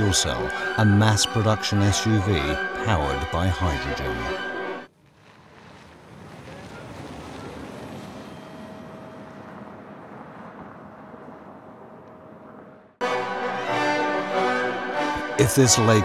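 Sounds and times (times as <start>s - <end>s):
tyre and wind noise: 4.9s - 12.5s
faint steady whine: 7.4s - 13.0s.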